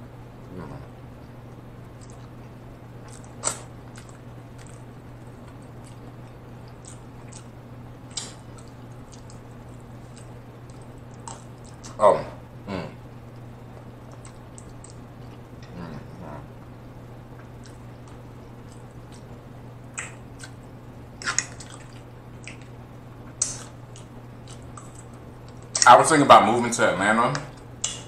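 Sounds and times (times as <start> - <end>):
wet chewing: 1.2 - 12.0, 13.3 - 15.8, 17.3 - 25.9
lip smacks: 3.0 - 9.5, 10.1 - 12.0, 13.3 - 15.7, 17.3 - 20.6, 21.2 - 25.9, 27.4 - 28.0.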